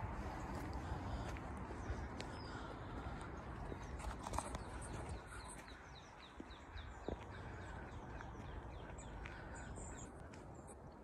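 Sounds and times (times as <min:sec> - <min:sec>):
songbird singing: 0:00.0 - 0:11.0.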